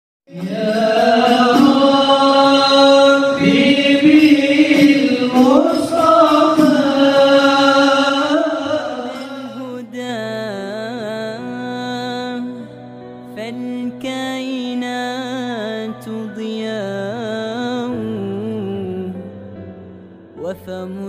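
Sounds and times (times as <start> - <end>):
chanted singing in long notes: 0.3 - 9.7.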